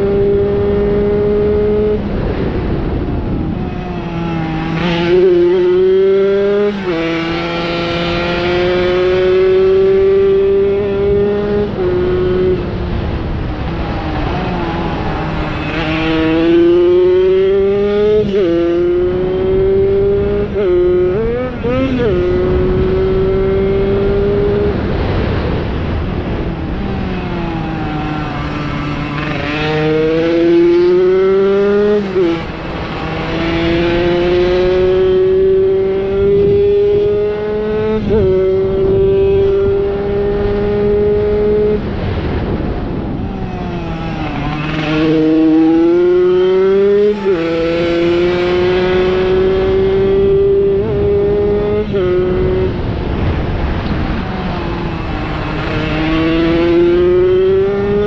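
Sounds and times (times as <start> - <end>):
moped engine revving: 43.4 - 58.0.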